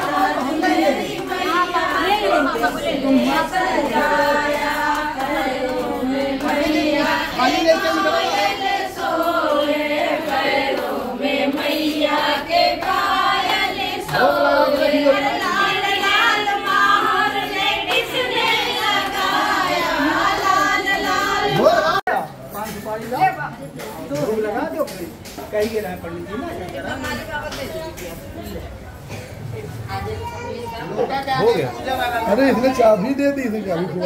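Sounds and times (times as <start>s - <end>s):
group singing unaccompanied: 0.0s - 22.1s.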